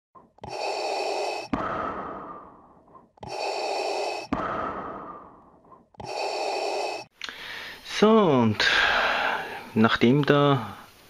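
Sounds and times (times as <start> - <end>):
heavy rhythmic breathing: 0.2 - 7.8.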